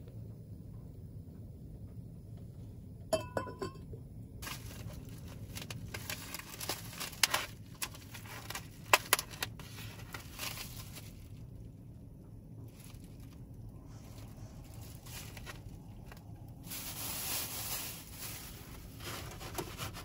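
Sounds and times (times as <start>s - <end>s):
lid clinking on clay pot: 3.1s - 3.9s
plastic film crinkling: 4.4s - 11.6s, 12.7s - 20.0s.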